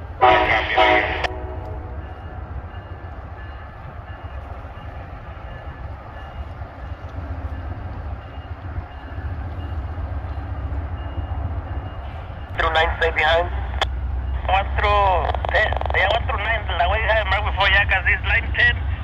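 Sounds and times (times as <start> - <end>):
train rumbling on tracks: 0.0 - 19.0.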